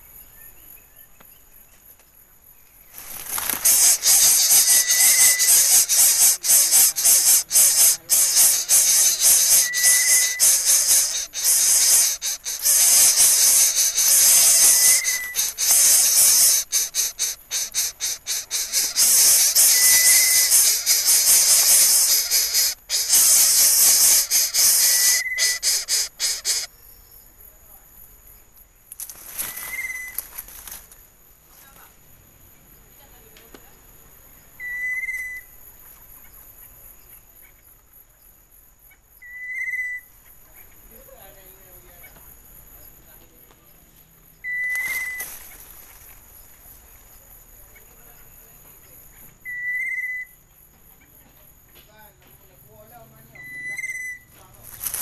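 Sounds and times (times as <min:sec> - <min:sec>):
nestlings hissing: 0:03.0 - 0:26.7
high whistled notes: 0:03.6 - 0:26.7.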